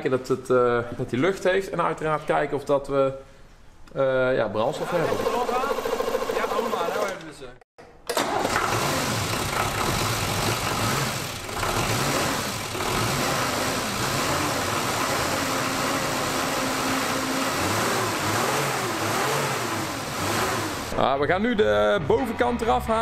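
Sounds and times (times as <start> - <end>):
diesel engine revving: 8.2 - 21.0.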